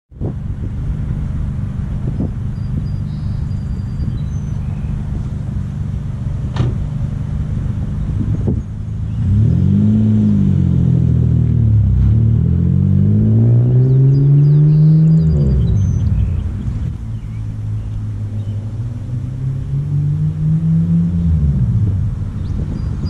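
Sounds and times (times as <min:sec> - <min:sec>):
car engine idling and revving: 0:00.1 - 0:23.0.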